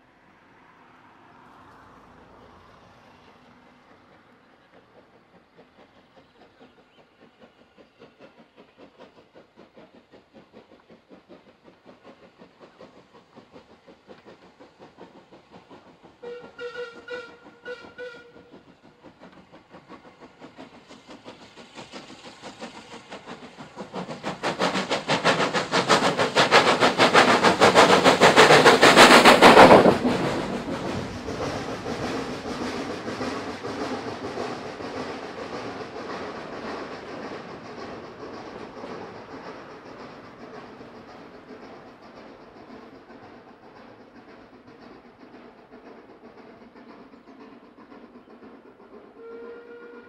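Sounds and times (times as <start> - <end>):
steam engine chuffing: 2.7 - 50.0
steam whistle: 16.2 - 18.5, 49.2 - 50.0.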